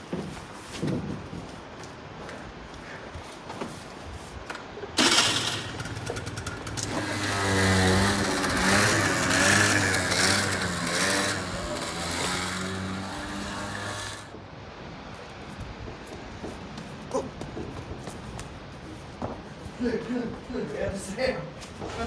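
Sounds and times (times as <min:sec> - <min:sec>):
scooter engine revving: 0:05.0 - 0:14.3.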